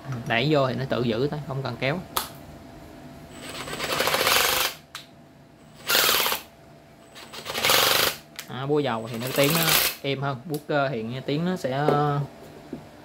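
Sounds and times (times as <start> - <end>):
impact driver pulsing: 5.8 - 6.5.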